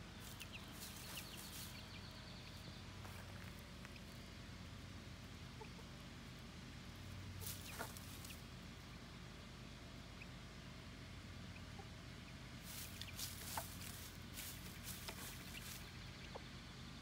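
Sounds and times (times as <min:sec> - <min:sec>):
hen clucking softly: 0:05.4 - 0:06.4, 0:07.4 - 0:08.5, 0:11.4 - 0:14.1, 0:14.7 - 0:16.8
scratchy rustle: 0:12.6 - 0:15.8.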